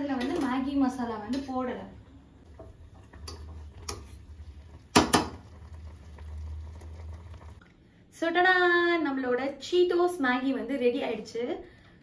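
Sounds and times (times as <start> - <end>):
pot boiling on gas stove: 0.0 - 7.7.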